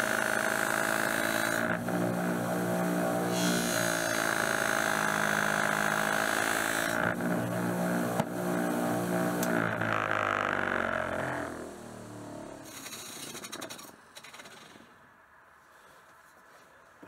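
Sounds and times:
electric grinder motor running: 0:00.0 - 0:12.1.

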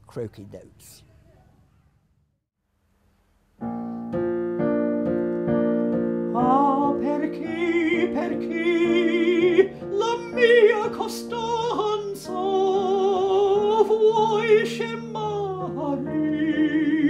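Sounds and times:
digital piano chords: 0:03.6 - 0:11.6.

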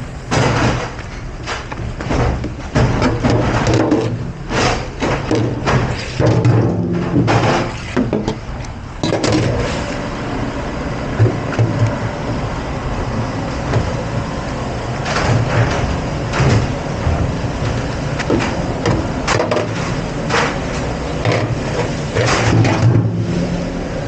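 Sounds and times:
dishes and racks clattering: 0:00.0 - 0:08.4, 0:15.0 - 0:23.4
dishwashing machinery rushing: 0:00.0 - 0:24.0.

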